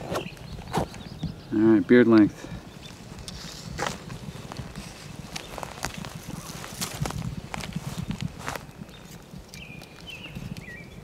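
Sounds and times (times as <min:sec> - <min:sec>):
rustling and handling noise: 0:02.8 - 0:10.6.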